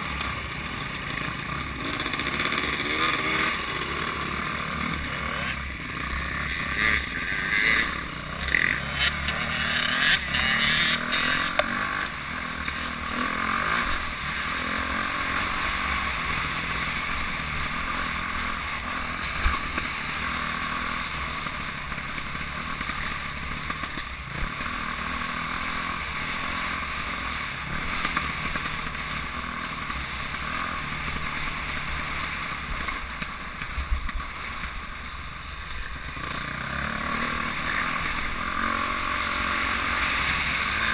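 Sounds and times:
dirt bike engine running: 0:00.0 - 0:40.9.

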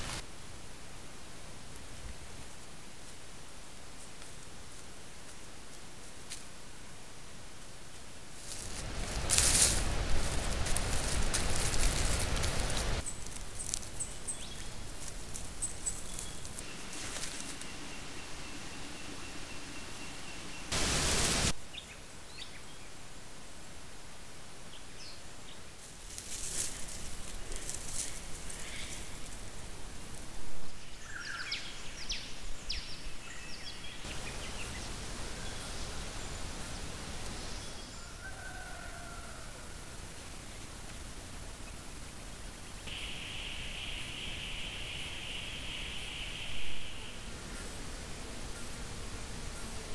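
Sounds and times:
bush ambience: 0:00.0 - 0:00.6, 0:07.6 - 0:22.5, 0:25.5 - 0:49.9
steady hiss: 0:00.0 - 0:49.9
bird scratching through dry leaves: 0:08.4 - 0:18.2, 0:25.8 - 0:29.6
faint high bird chirps: 0:15.6 - 0:22.9, 0:30.8 - 0:36.4, 0:42.9 - 0:47.3
faint drawn-out bird call: 0:37.5 - 0:39.7.

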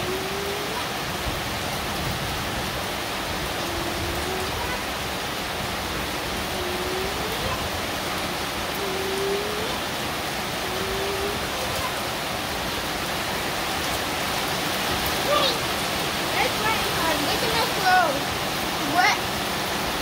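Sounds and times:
heavy rain on concrete and puddles: 0:00.0 - 0:20.0.

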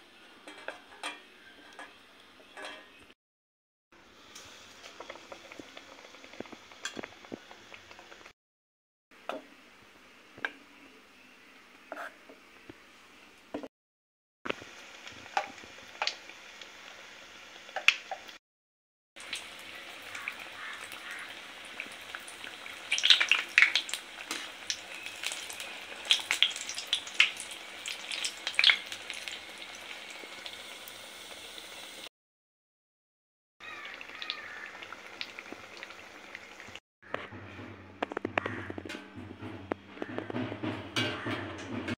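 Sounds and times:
food deep-frying in oil: 0:04.0 - 0:08.3, 0:14.5 - 0:18.4, 0:19.2 - 0:32.1, 0:33.6 - 0:36.8.

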